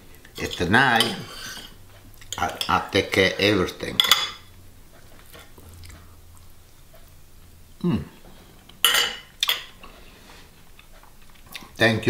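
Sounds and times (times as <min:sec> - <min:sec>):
cutlery scraping ceramic plate: 0:00.4 - 0:02.8, 0:08.8 - 0:09.8.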